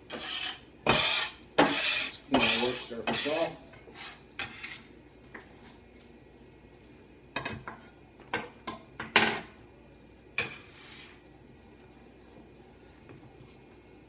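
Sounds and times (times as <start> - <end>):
metal scraper on wooden board: 0.1 - 4.8.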